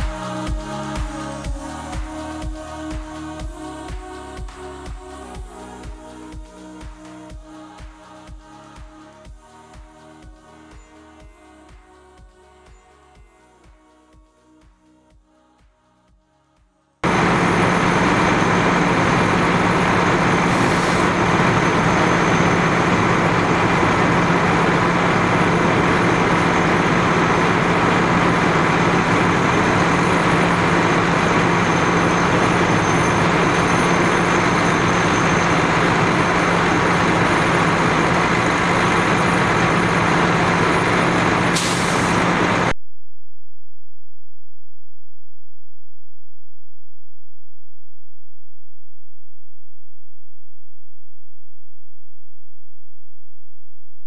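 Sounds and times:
diesel engine drone: 0:00.0 - 0:13.2, 0:17.0 - 0:42.7
short high hiss: 0:20.5 - 0:21.1, 0:41.5 - 0:42.2.

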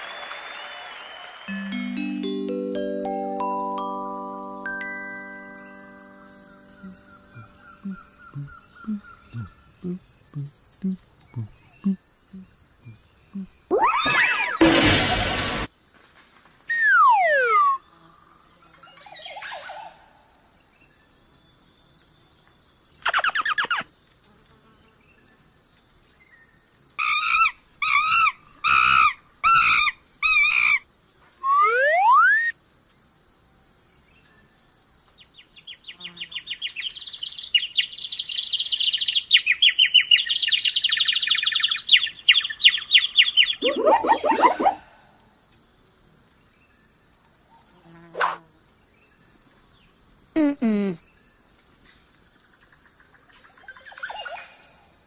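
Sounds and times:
cartoon rising glide: 0:01.5 - 0:04.5, 0:13.7 - 0:15.7, 0:16.7 - 0:17.8, 0:31.4 - 0:32.5, 0:43.6 - 0:45.0
cartoon falling whistle glide: 0:13.7 - 0:15.2, 0:16.7 - 0:17.8, 0:31.4 - 0:32.5, 0:43.6 - 0:45.0
cartoon quick chirps: 0:13.7 - 0:15.3, 0:16.7 - 0:17.8, 0:31.4 - 0:32.5, 0:43.6 - 0:45.0, 0:48.2 - 0:48.4
fast chattering trill: 0:43.6 - 0:44.8.

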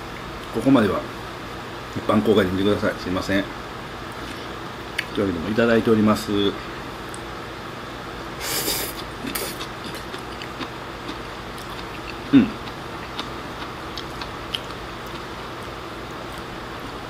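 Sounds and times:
person slurping food: 0:08.4 - 0:09.7
person chewing: 0:08.4 - 0:17.0.

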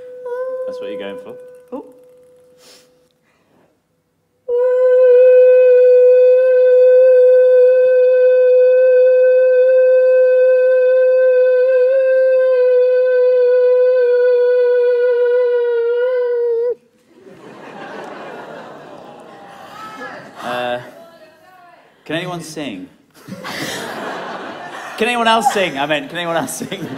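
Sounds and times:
woman singing a high note: 0:00.0 - 0:02.2, 0:04.5 - 0:16.8.

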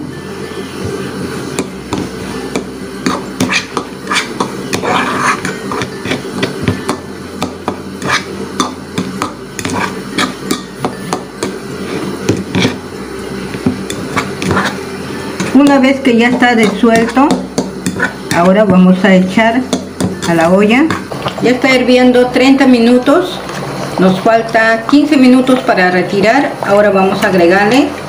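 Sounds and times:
spoon stirring in a bowl: 0:01.5 - 0:18.8.

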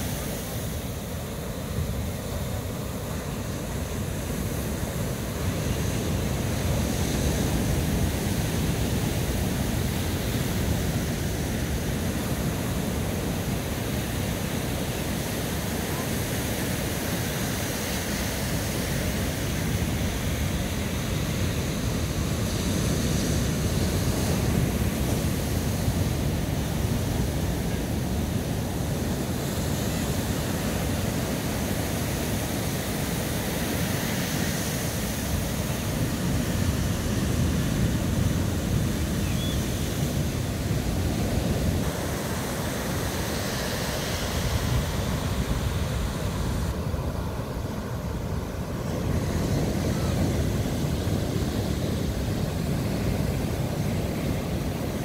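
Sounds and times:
surf waves breaking: 0:00.0 - 0:55.0.

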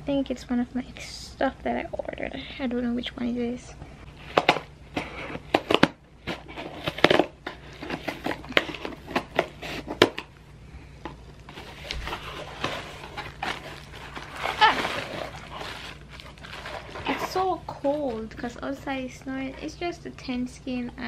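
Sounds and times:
cardboard flaps rustling: 0:11.5 - 0:18.2.

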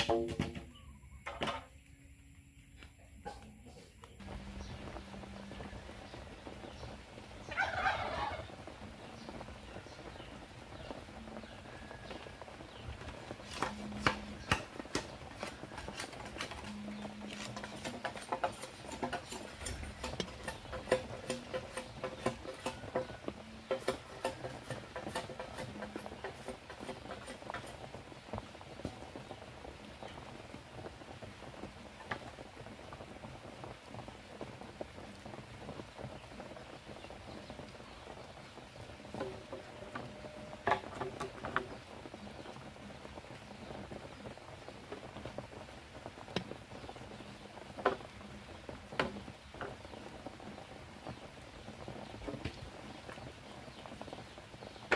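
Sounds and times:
chicken call: 0:07.5 - 0:08.4.

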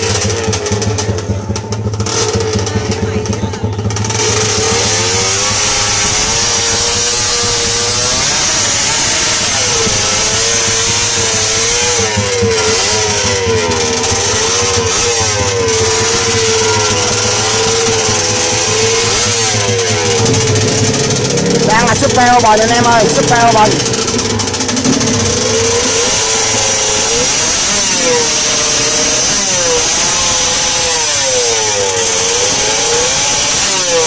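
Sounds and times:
motorcycle engine revving: 0:00.0 - 0:34.0.

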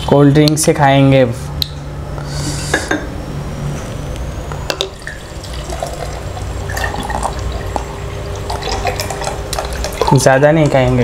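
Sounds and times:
soft drink pouring and fizzing: 0:04.8 - 0:11.0.

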